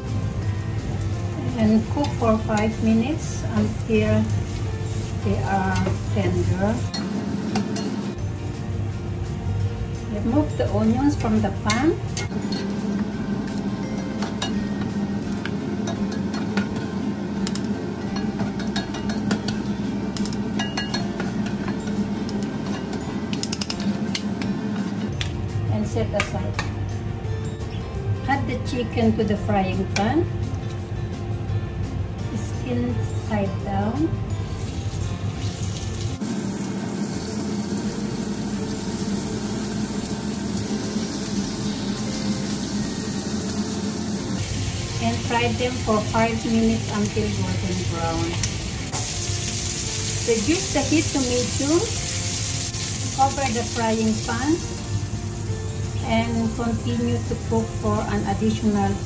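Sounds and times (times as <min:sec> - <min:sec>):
chicken sizzling in frying pan: 0:34.4 - 0:59.0.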